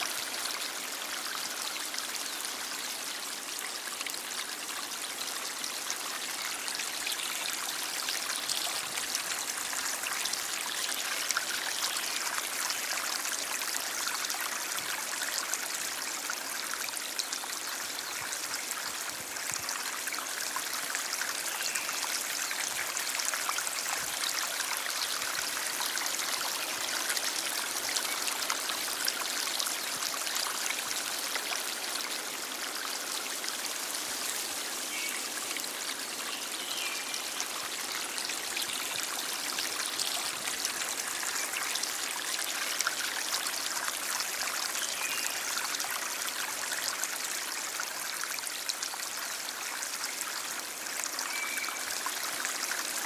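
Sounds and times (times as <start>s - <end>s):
stream flowing: 0.0s - 53.0s.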